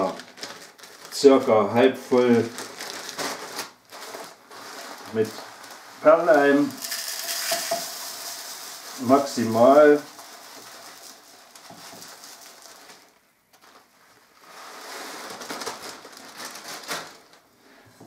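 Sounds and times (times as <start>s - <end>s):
plastic bag crinkling: 0.0s - 17.5s
granules trickling into plastic cup: 2.4s - 13.8s.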